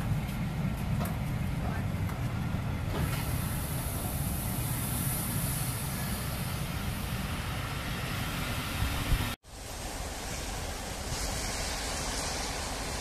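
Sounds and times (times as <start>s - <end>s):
train rumbling: 0.0s - 13.0s
air hissing: 2.9s - 8.2s, 8.9s - 13.0s.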